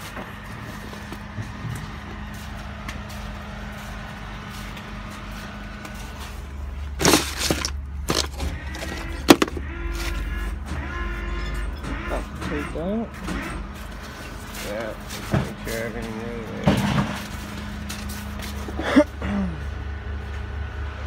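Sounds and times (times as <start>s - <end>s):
truck engine idling: 0.0s - 21.0s
metal clanks and bangs: 6.9s - 17.5s.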